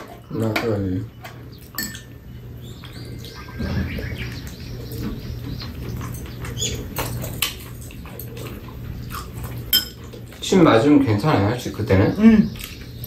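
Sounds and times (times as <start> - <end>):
chopsticks and spoons clicking on bowls: 0.0 - 2.2, 5.6 - 10.4
birds chirping: 0.0 - 13.0.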